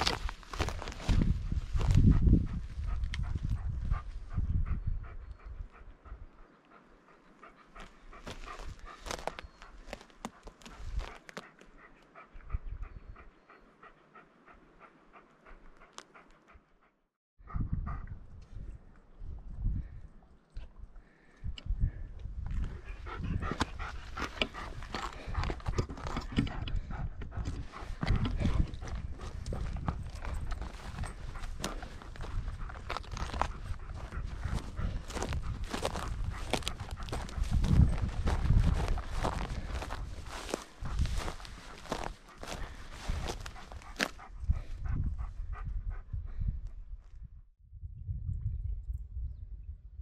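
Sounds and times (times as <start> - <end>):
dog panting: 0.1 - 18.2, 21.9 - 46.7
footsteps scuffing on rock: 27.9 - 44.2.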